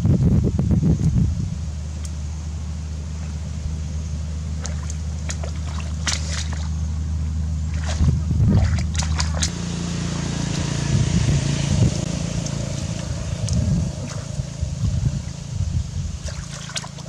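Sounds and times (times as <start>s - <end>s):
steady low hum: 0.0s - 17.0s
hands splashing in muddy water: 4.6s - 6.8s, 7.6s - 9.6s, 12.4s - 15.4s, 16.2s - 17.0s.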